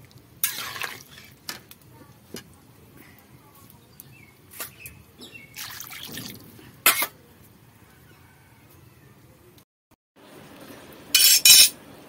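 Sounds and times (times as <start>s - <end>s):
curry bubbling in a pan: 0.0s - 7.0s.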